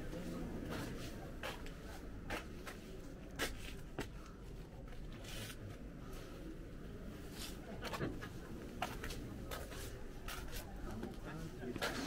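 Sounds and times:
low background noise: 0.0s - 12.0s
scrapes and rustles: 4.9s - 5.8s.

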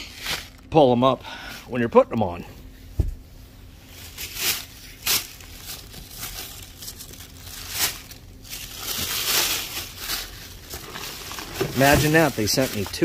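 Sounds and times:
tissue paper rustling: 3.8s - 13.0s.

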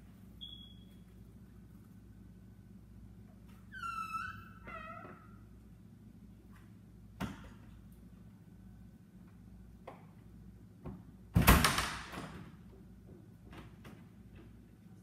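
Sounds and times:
low steady hum: 0.0s - 11.5s.

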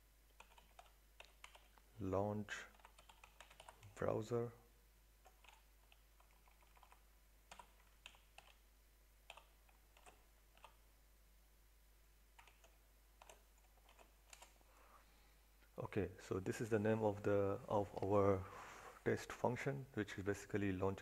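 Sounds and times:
keyboard typing: 0.3s - 1.8s, 2.7s - 4.0s, 5.2s - 8.6s, 9.2s - 10.8s, 12.4s - 14.6s.

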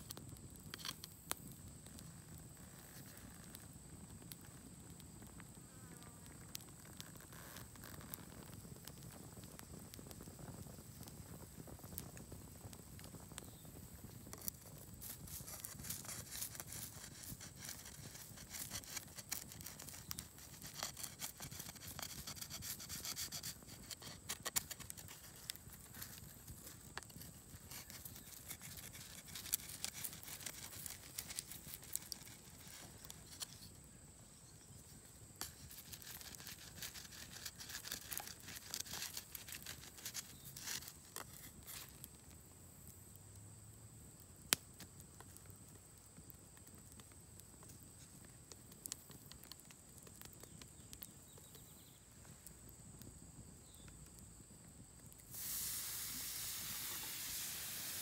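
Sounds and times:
campfire crackling and popping: 0.0s - 58.0s
food sizzling on hot stone: 6.4s - 33.8s, 35.2s - 42.4s, 55.2s - 58.0s.

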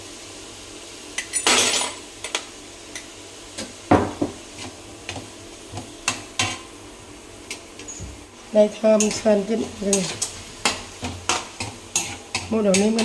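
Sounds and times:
utensils clinking against pots: 1.2s - 2.4s, 8.9s - 13.0s.

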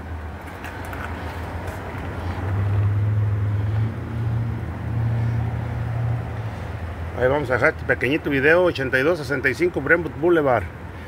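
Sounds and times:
outdoor background noise: 0.0s - 11.0s
vehicle engine running: 0.2s - 7.8s.

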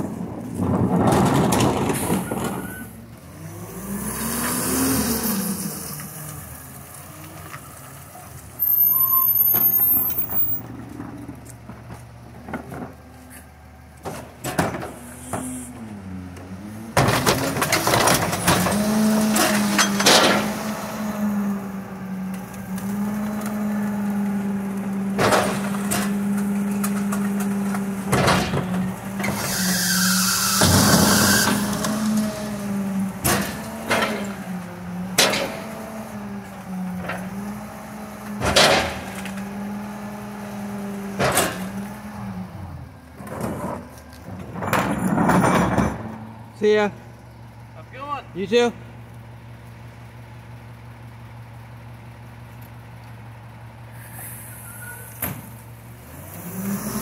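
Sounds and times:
carts and loading gear banging: 0.0s - 3.1s, 7.4s - 20.8s, 22.3s - 47.0s
garbage truck engine: 0.0s - 57.0s.

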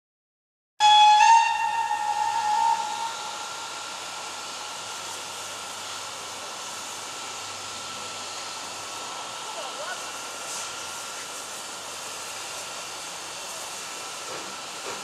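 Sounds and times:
steam locomotive whistle: 0.8s - 4.6s
steam hissing: 0.9s - 15.0s.

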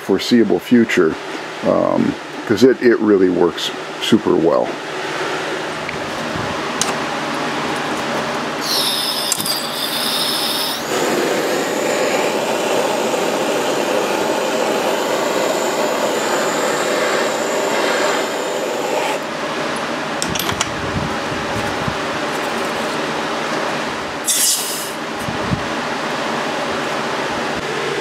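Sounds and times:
gas torch flame burning: 5.8s - 28.0s
high whistling: 8.6s - 13.0s.

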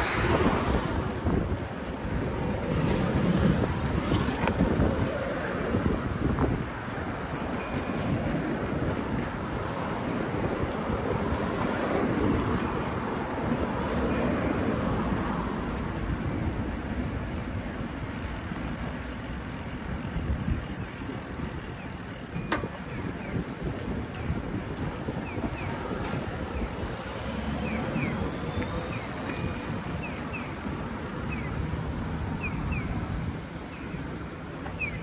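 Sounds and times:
street traffic: 0.0s - 35.0s
wind noise: 0.0s - 35.0s
vehicle passing: 25.8s - 32.8s.

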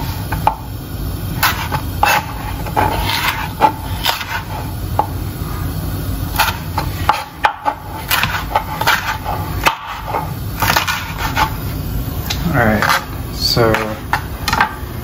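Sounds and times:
steady low hum: 0.0s - 15.0s
knife hitting cutting board: 6.4s - 10.0s.

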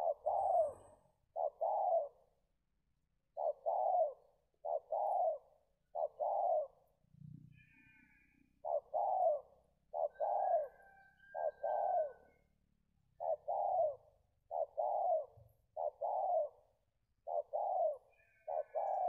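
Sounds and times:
dove cooing: 0.0s - 2.4s, 3.3s - 7.0s, 8.6s - 12.4s, 13.2s - 19.0s.

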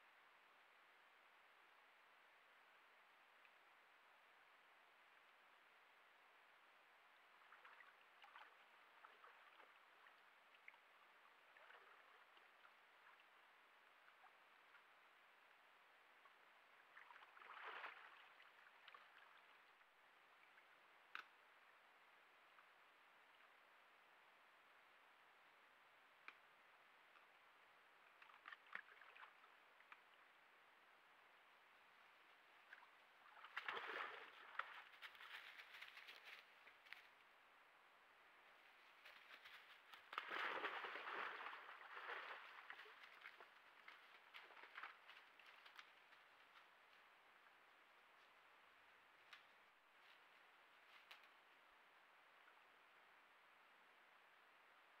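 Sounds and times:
water sloshing and splashing: 16.8s - 19.6s, 28.2s - 29.7s, 32.6s - 35.8s, 39.9s - 46.1s.

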